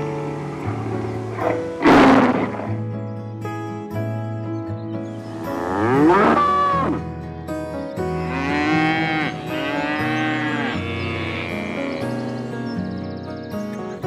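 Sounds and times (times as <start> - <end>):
background music: 0.0 - 14.0
cow lowing: 5.3 - 7.1, 8.2 - 13.0.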